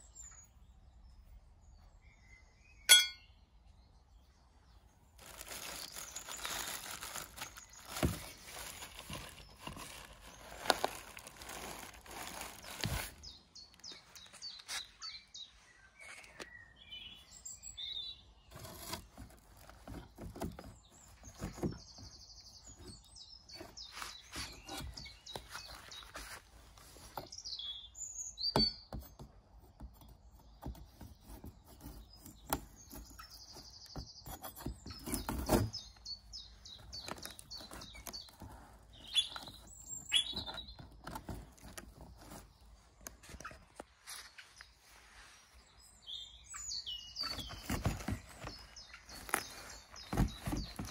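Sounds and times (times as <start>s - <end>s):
birds chirping: 0.0s - 50.9s
plastic bag crinkling: 5.2s - 14.7s
cardboard knocks and scrapes: 5.2s - 15.0s, 18.5s - 27.4s, 28.6s - 44.0s, 47.2s - 50.9s
knife scraping cardboard box: 18.5s - 21.9s, 22.7s - 27.4s, 30.4s - 36.2s, 47.2s - 50.9s.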